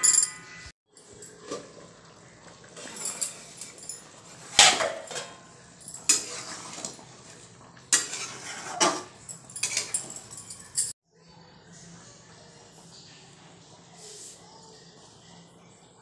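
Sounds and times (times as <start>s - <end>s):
steel cookware clanking: 2.6s - 11.0s.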